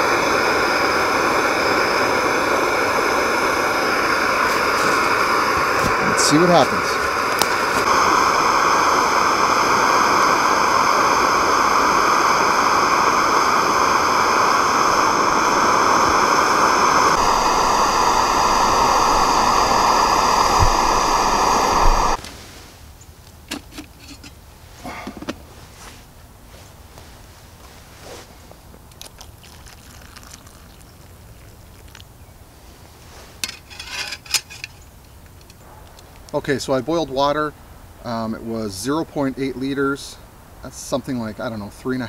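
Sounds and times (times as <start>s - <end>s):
gas stove hissing: 0.0s - 22.2s, 23.4s - 26.2s, 32.5s - 37.4s.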